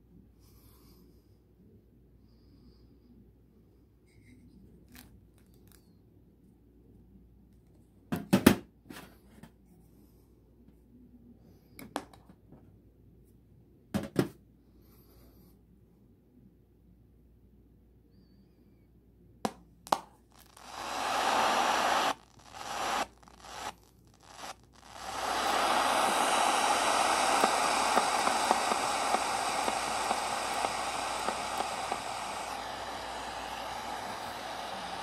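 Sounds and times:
radio clicks: 20.4s - 35.0s
radio static hiss: 20.4s - 35.0s.

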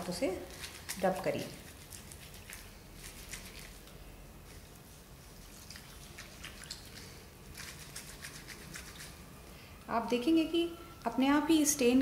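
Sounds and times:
wet cloth splashing and squelching: 0.4s - 3.9s.

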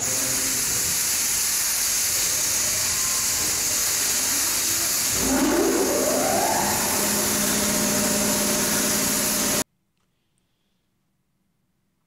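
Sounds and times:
spray gun hissing: 0.0s - 9.6s
motor humming: 3.0s - 9.6s.

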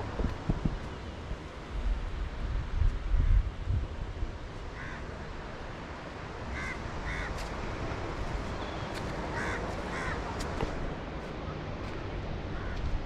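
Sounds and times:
wind buffeting microphone: 0.0s - 4.8s
crows cawing: 4.8s - 5.0s, 6.5s - 7.3s, 9.3s - 10.2s, 12.6s - 12.8s.

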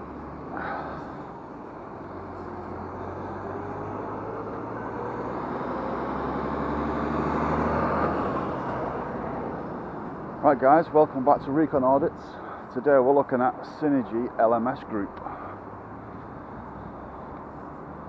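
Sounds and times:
lorry diesel engine driving past: 0.0s - 10.7s.

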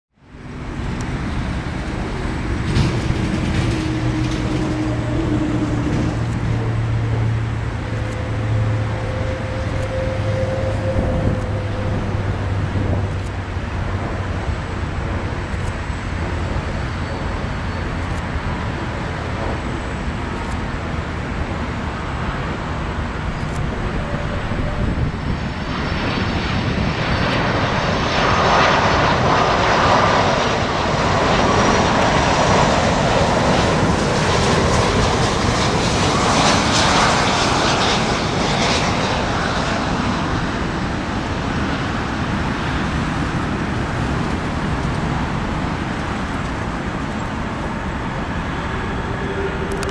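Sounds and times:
high fan whine: 0.2s - 27.8s
jet airliner passing: 0.2s - 49.9s.

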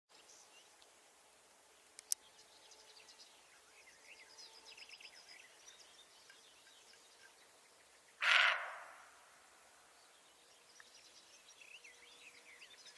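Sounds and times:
faint bird chirping: 1.7s - 12.9s
deer barking: 8.2s - 9.1s.

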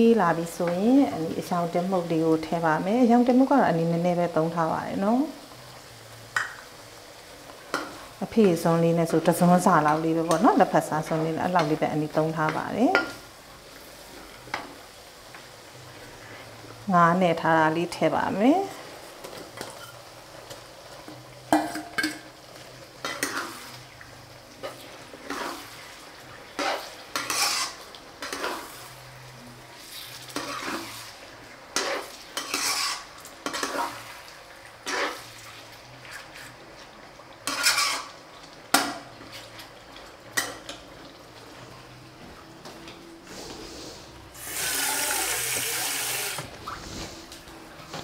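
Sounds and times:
metal ladle scraping pot: 26.6s - 28.7s, 31.8s - 33.9s, 37.5s - 38.1s.

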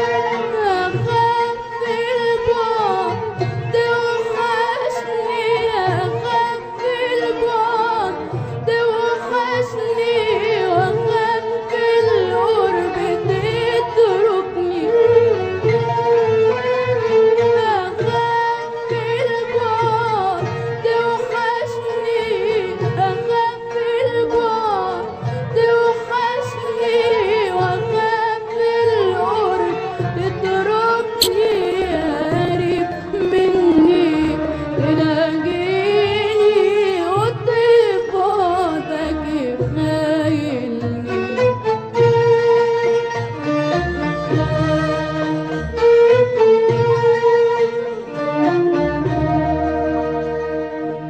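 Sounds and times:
woman singing with vibrato: 0.0s - 15.1s, 17.6s - 41.2s.

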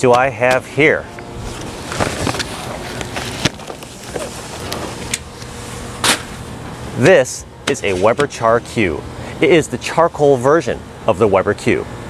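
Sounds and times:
fabric cover rustling: 1.4s - 6.4s.

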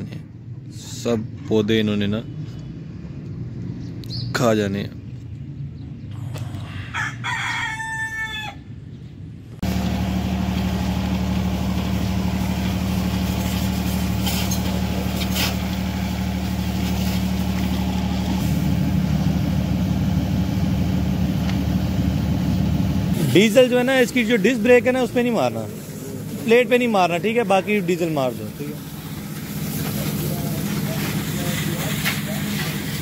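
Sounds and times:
rooster crowing: 6.7s - 8.7s
pressure washer motor humming: 9.6s - 33.0s.

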